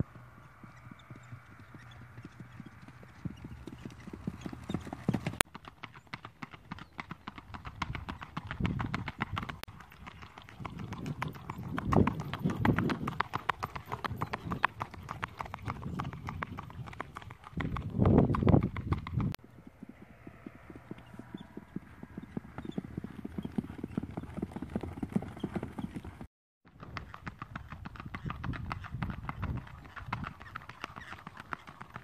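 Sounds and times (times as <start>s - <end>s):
hoofbeats on loose dirt: 0.0s - 32.0s
hoofbeats on pavement: 0.0s - 32.0s
low rumble: 19.4s - 22.8s.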